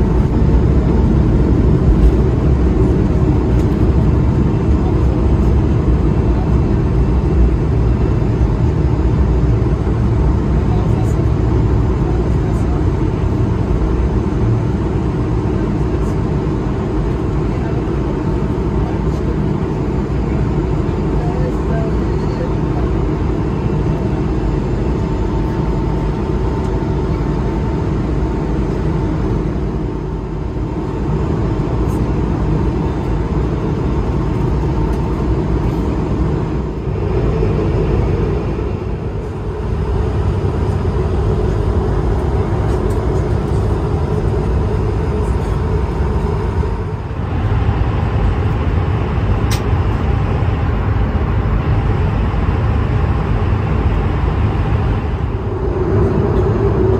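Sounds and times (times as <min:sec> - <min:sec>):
faint steady whine: 0:00.0 - 0:56.9
jet engines roaring: 0:00.0 - 0:56.9
rushing air: 0:54.4 - 0:56.9.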